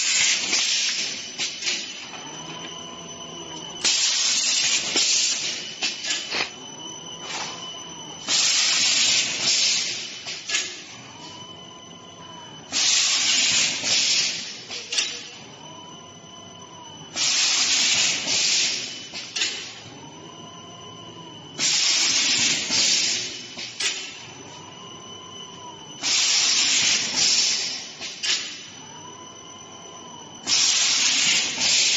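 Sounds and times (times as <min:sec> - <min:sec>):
faint rising and falling whine: 0:00.0 - 0:12.8, 0:14.3 - 0:17.1, 0:23.2 - 0:26.0
steady high whine: 0:00.0 - 0:31.9
loud machine hiss: 0:03.8 - 0:06.3, 0:12.7 - 0:15.0, 0:17.2 - 0:18.9, 0:21.6 - 0:24.0, 0:26.0 - 0:28.5, 0:30.4 - 0:31.9
machine hissing: 0:12.7 - 0:15.0.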